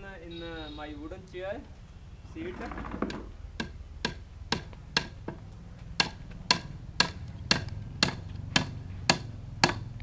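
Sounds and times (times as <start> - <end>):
hammer driving nails into wood: 6.0 - 9.9.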